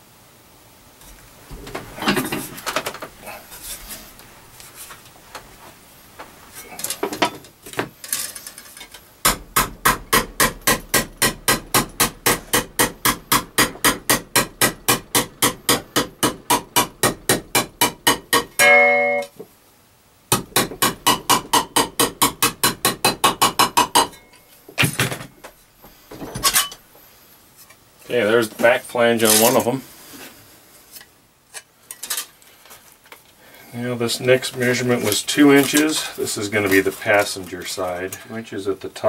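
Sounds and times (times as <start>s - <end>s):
metal clanks and rattles: 1.6s - 3.9s, 6.6s - 18.5s, 26.2s - 26.8s
hammer striking metal: 9.2s - 19.3s, 20.3s - 24.3s.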